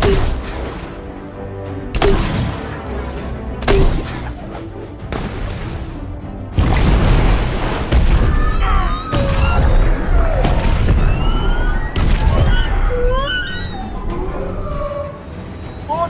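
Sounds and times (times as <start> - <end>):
high gliding whale-like wails: 11.1 - 15.9.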